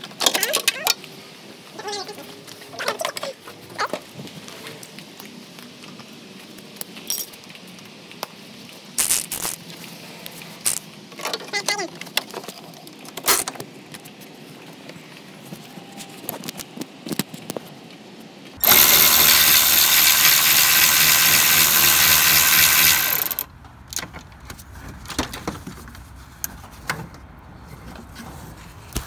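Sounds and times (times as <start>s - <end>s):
tools and parts clinking: 7.0s - 7.5s
power impact gun running: 18.6s - 23.5s.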